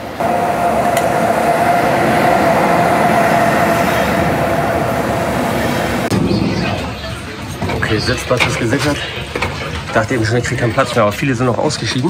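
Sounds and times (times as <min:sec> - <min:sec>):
high-pitched whine: 0:00.0 - 0:08.3
train coaches rumbling: 0:00.0 - 0:12.0.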